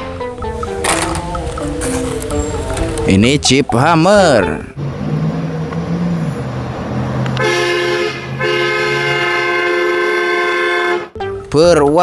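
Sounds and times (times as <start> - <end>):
car horn blasts: 7.4 - 11.2.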